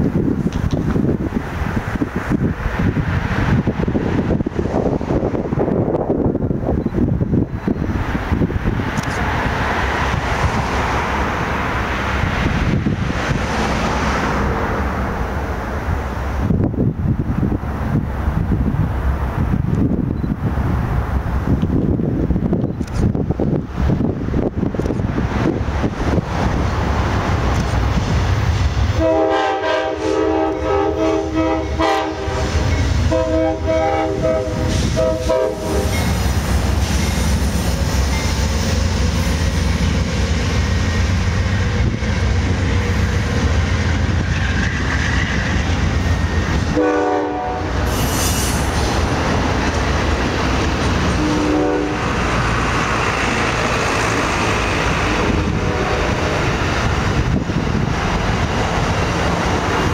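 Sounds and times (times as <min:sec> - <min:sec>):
diesel locomotive rumble: 0:00.0 - 0:59.9
train air horn blasts: 0:29.0 - 0:36.1, 0:46.7 - 0:48.7, 0:51.2 - 0:52.2, 0:55.1 - 0:56.4
train wheels clacking on rails: 0:31.6 - 0:46.8.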